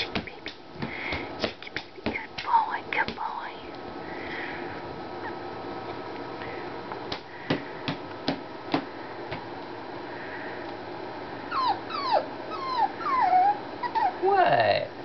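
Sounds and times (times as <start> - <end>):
puppy whimpering yips: 11.5 - 14.3.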